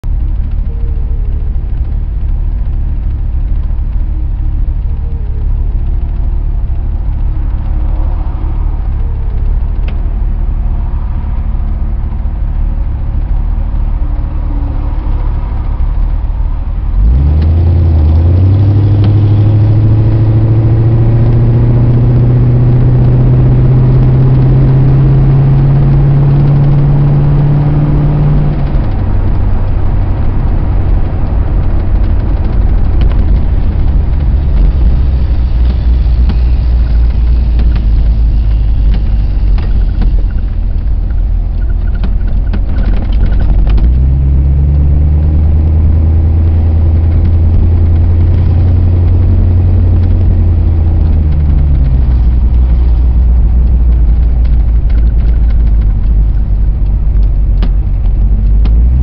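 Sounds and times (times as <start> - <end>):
vehicle engine idling and revving: 0.0 - 59.0.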